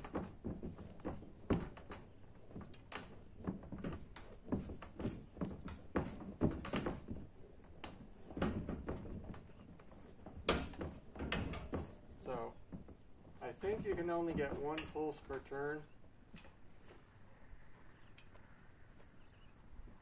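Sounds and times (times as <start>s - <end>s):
metal clunks and rattles: 0.0s - 15.0s.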